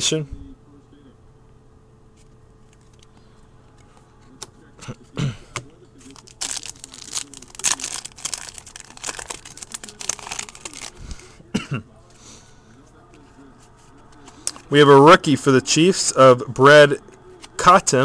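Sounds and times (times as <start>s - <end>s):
foil wrapper crinkling and tearing: 6.0s - 11.0s.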